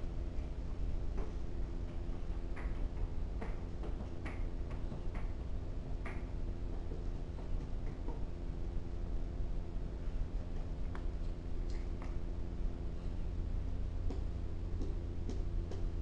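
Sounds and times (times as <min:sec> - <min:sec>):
low electrical hum: 0:00.0 - 0:16.0
goat hooves clicking on hard floor: 0:00.4 - 0:08.5.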